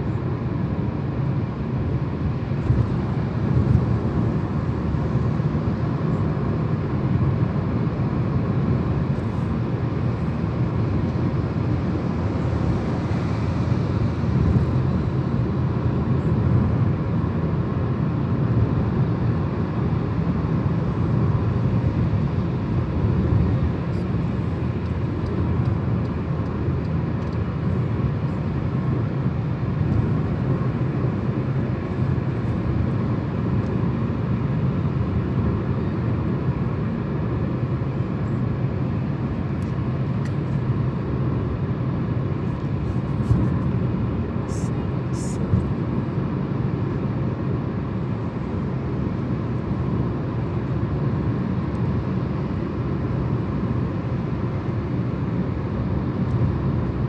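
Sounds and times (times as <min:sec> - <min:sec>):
car tyres and engine rumble: 0:00.0 - 0:57.0.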